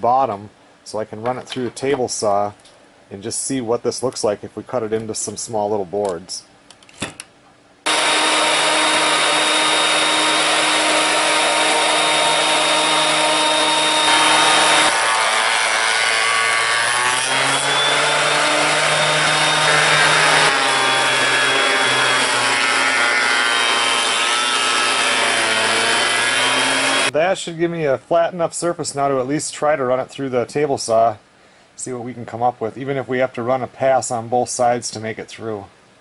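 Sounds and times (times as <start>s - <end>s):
jointer planing wood: 7.9s - 27.1s.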